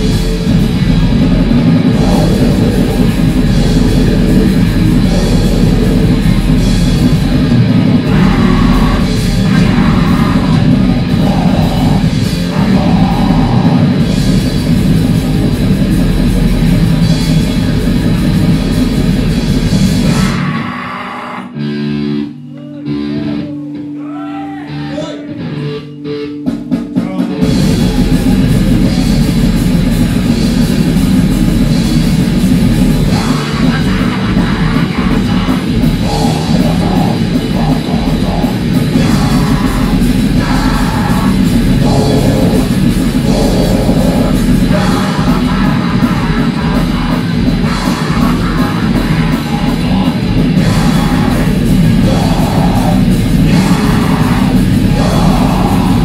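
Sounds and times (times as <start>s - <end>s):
grindcore band playing live: 0.0s - 56.0s
shouted vocals: 22.6s - 25.4s, 43.4s - 56.0s.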